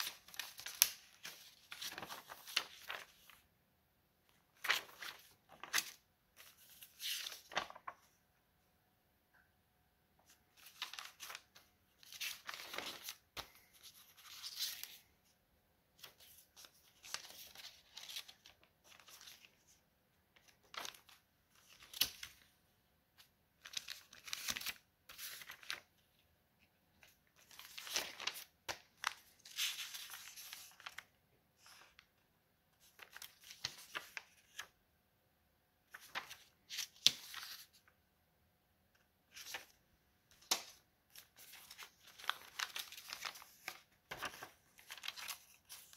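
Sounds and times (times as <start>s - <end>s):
paper snap: 0.0s - 3.0s, 40.3s - 40.8s
paper rustling: 0.0s - 3.5s, 4.3s - 8.2s, 10.2s - 15.1s, 16.0s - 19.8s, 20.4s - 22.5s, 23.2s - 26.1s, 27.0s - 32.1s, 32.8s - 34.8s, 35.9s - 38.0s, 39.3s - 45.9s.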